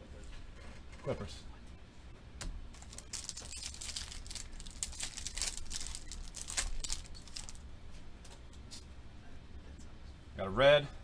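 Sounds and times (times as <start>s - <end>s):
foil wrapper tearing and crinkling: 2.8s - 7.6s.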